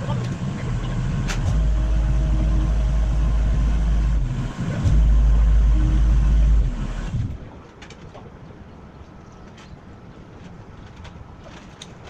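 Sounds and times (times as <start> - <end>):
boom lift engine rumbling: 0.0 - 7.6.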